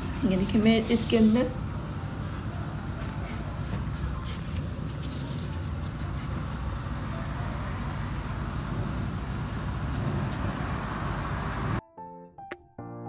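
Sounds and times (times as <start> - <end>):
pastry sheets crinkling: 0.0 - 7.1.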